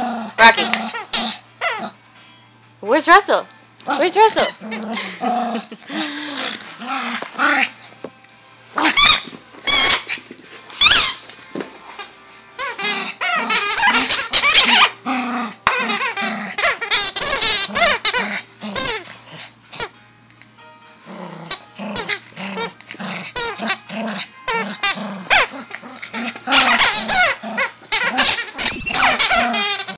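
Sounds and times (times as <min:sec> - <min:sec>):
squeaky toy squeaks: 0:00.4 - 0:02.0, 0:04.0 - 0:05.2, 0:08.8 - 0:10.2, 0:10.8 - 0:11.2, 0:12.6 - 0:15.0, 0:15.6 - 0:19.1, 0:21.5 - 0:22.8, 0:23.4 - 0:29.9.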